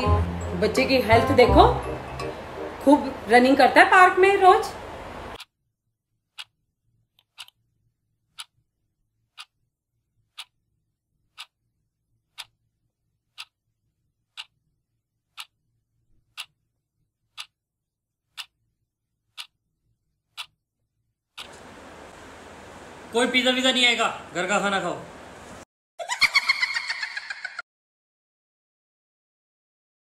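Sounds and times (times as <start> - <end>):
clock ticking: 7.2 - 7.6, 8.3 - 8.6, 9.3 - 9.6, 10.3 - 10.6, 11.3 - 11.6, 12.3 - 12.6, 13.3 - 13.6, 14.3 - 14.6, 15.3 - 15.6, 16.3 - 16.6, 17.3 - 17.6, 18.3 - 18.6, 19.3 - 19.6, 20.3 - 20.6, 21.3 - 21.6.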